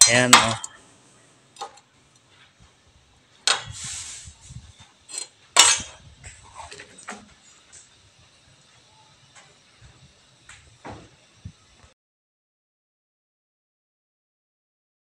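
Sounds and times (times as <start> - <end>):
metal scrape: 3.4 - 7.9.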